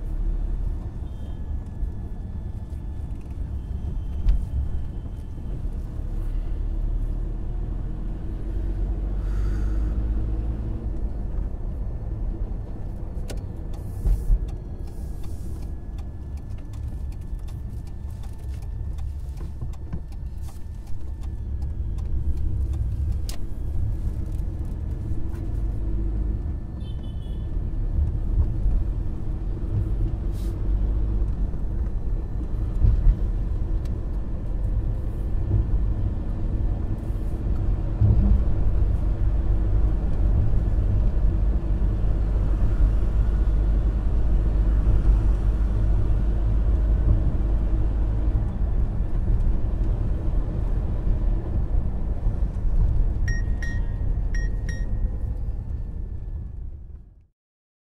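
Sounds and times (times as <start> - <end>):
road and engine rumble: 0.0 - 57.3.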